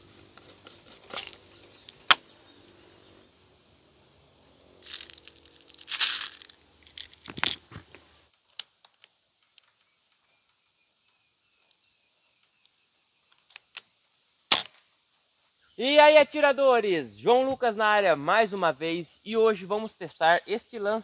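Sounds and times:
pellets rattling in metal tin: 4.8 - 7.5
air rifle shot: 14.5 - 14.8.

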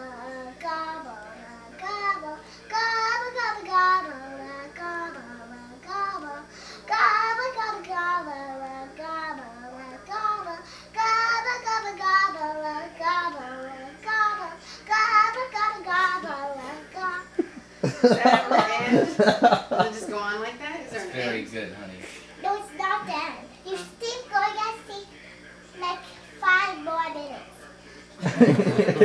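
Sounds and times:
girl singing: 0.0 - 17.4, 22.4 - 25.1.

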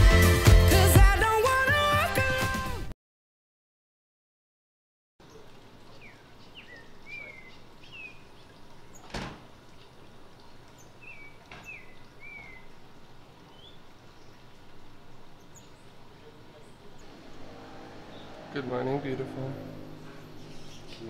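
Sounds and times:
bird whistling: 11.0 - 12.7.

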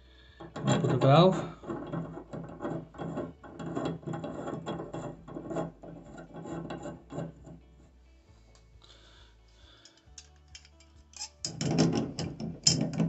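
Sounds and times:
metal threads scraping clicks: 9.8 - 13.0.

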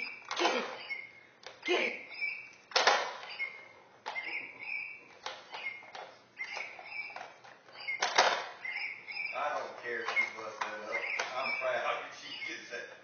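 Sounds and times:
plastic toy knocks: 8.0 - 8.6.

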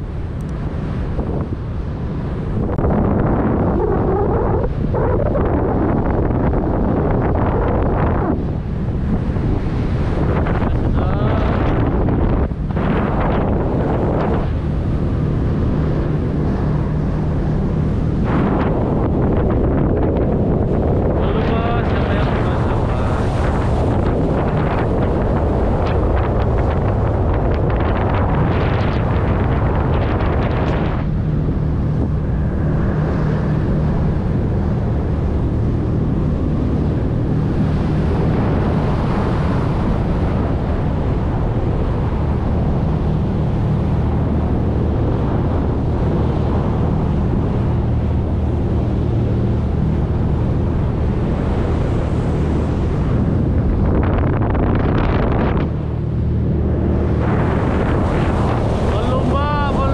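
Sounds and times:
boat engines droning: 0.0 - 59.9
water rushing past hull: 0.0 - 59.9
wind buffeting microphone: 0.0 - 59.9.

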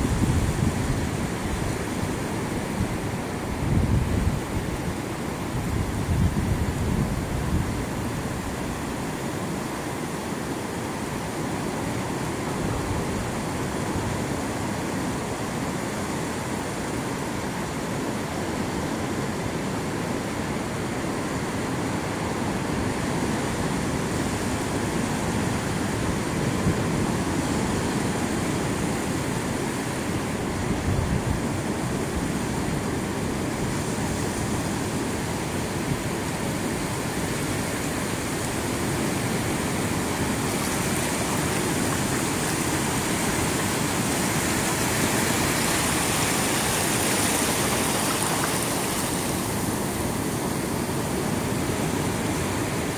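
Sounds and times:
waves washing over sand: 0.0 - 52.9
ocean surf breaking: 21.4 - 52.9.

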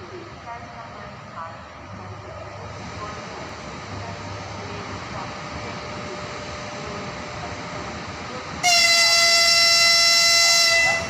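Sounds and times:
steady background hum: 0.0 - 8.6
locomotive horn blast: 8.6 - 11.0.

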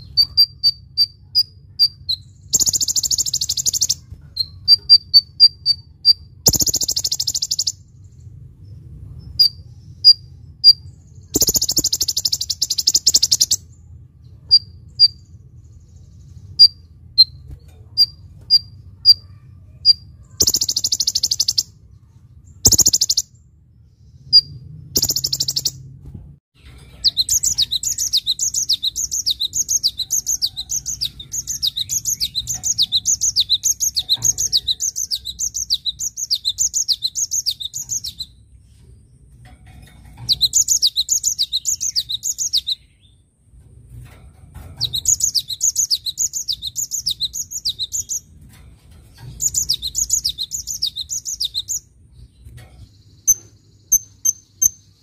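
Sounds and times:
bird singing high phrase: 0.0 - 7.9, 9.3 - 13.7, 19.8 - 21.8, 22.5 - 23.4, 24.2 - 25.8, 26.6 - 38.4, 40.3 - 43.1, 44.8 - 48.3, 49.4 - 51.9.

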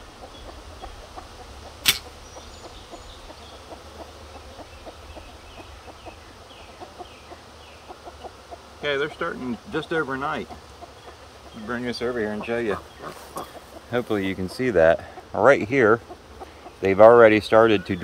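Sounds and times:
poultry clucking: 0.0 - 18.0
wooden frame clicking loose: 1.8 - 2.1
faint handling ticks: 6.8 - 18.0.

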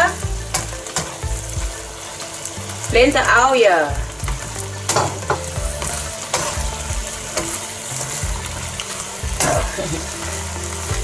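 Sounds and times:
food sizzling in a pan: 0.0 - 11.0.

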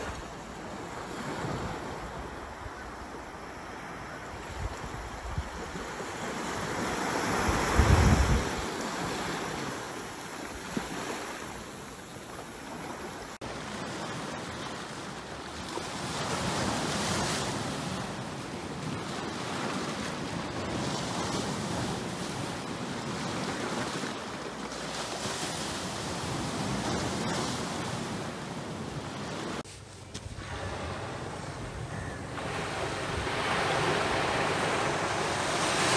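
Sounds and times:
wind buffeting microphone: 4.5 - 8.7
surf hissing: 25.9 - 35.9
waves washing against rocks: 30.4 - 35.9.

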